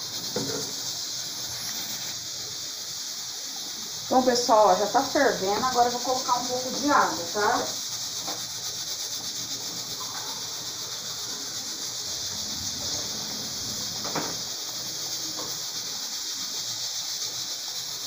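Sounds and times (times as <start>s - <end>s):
pressure cooker steam hissing: 0.0s - 18.0s
sauce boiling pops: 8.1s - 9.3s.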